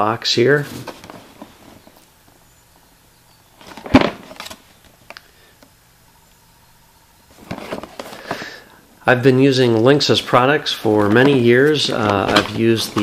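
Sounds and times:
cardboard box rustling: 0.6 - 2.1, 3.6 - 4.6, 7.3 - 8.5, 10.9 - 13.0.

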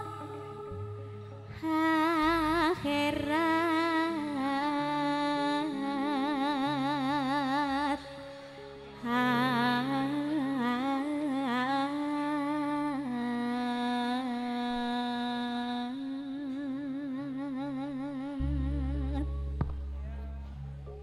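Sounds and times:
band low notes: 0.0 - 6.1, 16.2 - 21.0
woman singing with vibrato: 0.0 - 8.3, 9.0 - 19.4
quiet sustained backing tones: 0.0 - 21.0.

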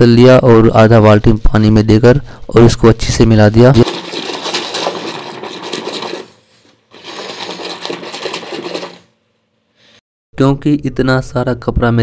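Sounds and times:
hand swishing water in bucket: 3.8 - 9.2.

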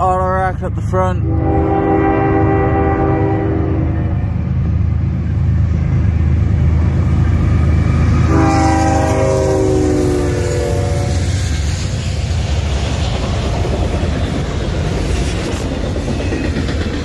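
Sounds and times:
train rumbling: 0.0 - 17.0
locomotive air horn: 1.2 - 4.2, 8.2 - 11.3.

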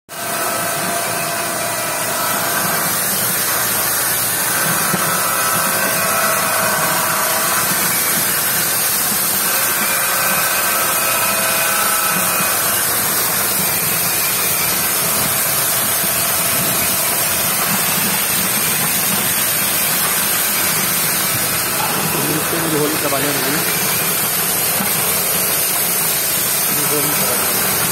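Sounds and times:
washing machine mechanical whir: 0.1 - 27.9
high hiss of water: 12.6 - 27.9.

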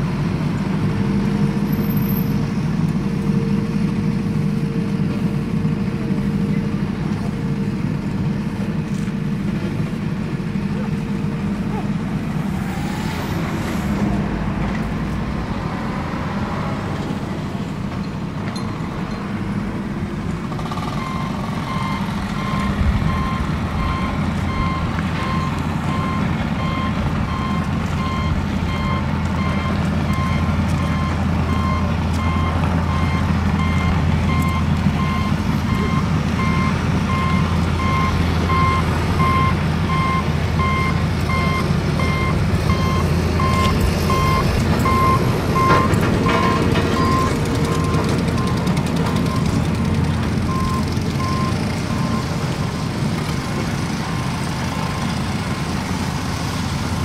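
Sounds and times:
heavy engine hum: 0.0 - 57.0
truck engine rumbling: 0.0 - 57.0
reversing alarm beeping: 20.7 - 49.6, 50.5 - 53.0.

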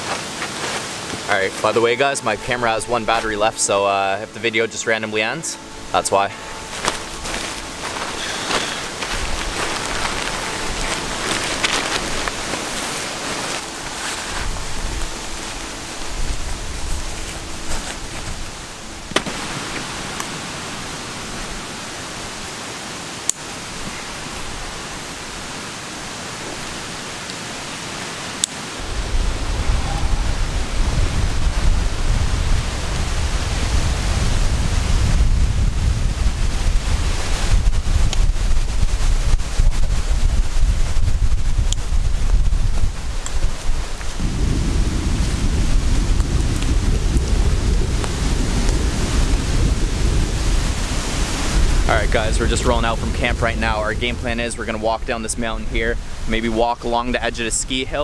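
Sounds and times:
tent fabric and tarp rustling: 0.0 - 55.0
wind buffeting microphone: 5.6 - 22.5, 28.6 - 58.0.

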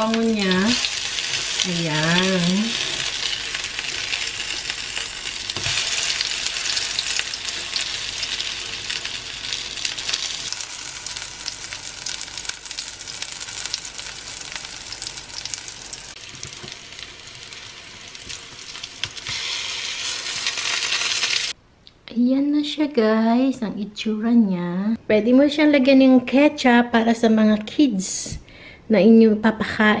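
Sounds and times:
fritters sizzling in oil: 0.0 - 21.6.

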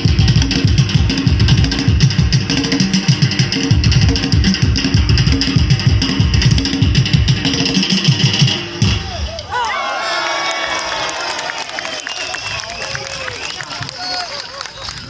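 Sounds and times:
dance music with fast drumming: 0.0 - 8.7.

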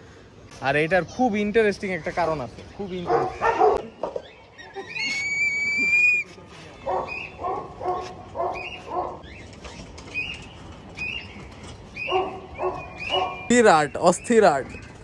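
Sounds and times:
dog barking: 3.1 - 3.9, 6.8 - 9.2, 12.1 - 13.5.

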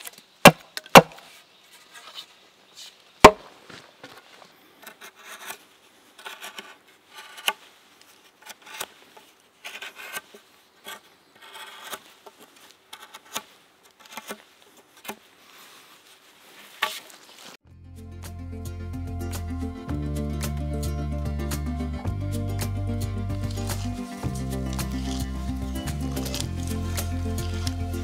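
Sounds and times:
knife carving wood: 4.8 - 15.3, 23.4 - 28.0.

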